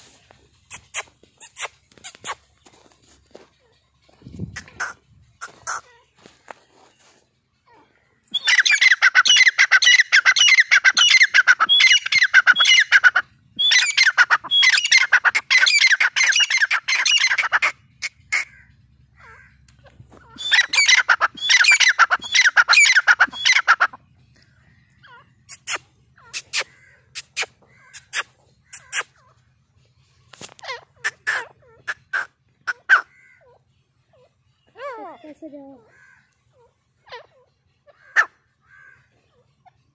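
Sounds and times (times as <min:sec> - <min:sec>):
bird calling shrill notes: 0:00.1 - 0:39.8
short sharp bird chips: 0:25.5 - 0:29.3.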